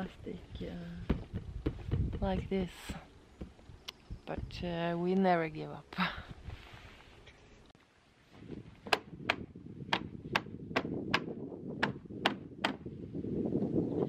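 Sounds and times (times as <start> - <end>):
sharp knocks on canoe frame: 8.8 - 12.8.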